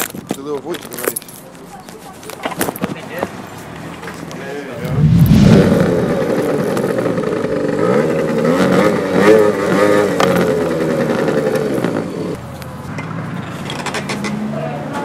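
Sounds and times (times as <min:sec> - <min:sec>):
scooter two-stroke engine running: 0:06.4 - 0:12.4.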